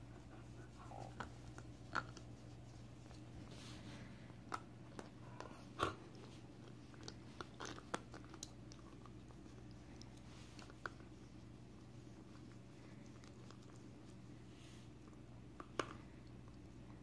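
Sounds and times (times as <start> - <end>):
faint steady hum: 0.0 - 17.0
dog teeth crunching on bone: 4.3 - 11.2.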